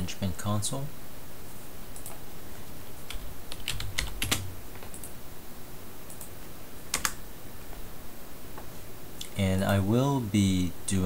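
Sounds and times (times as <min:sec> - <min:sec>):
computer keyboard typing: 0:03.1 - 0:05.1, 0:06.9 - 0:07.2.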